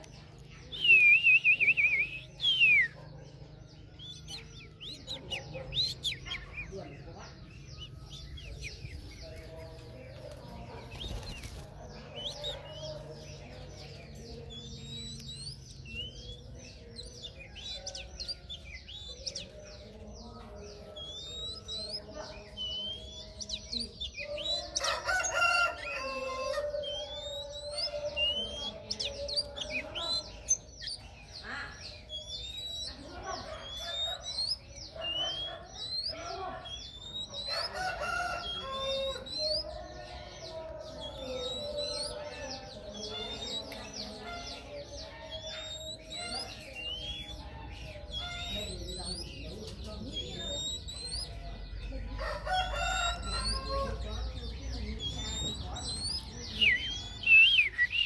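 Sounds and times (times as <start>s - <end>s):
bird singing whistled notes: 0.7s - 3.1s, 12.0s - 40.0s, 40.8s - 51.9s, 52.6s - 58.0s
rooster crowing: 52.2s - 54.1s.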